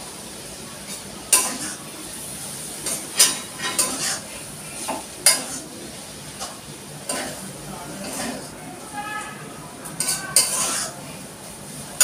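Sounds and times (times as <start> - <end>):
faint sizzle from pan: 0.0 - 12.0
metal spatula scraping a wok: 2.9 - 4.3, 8.0 - 8.5, 10.0 - 11.0.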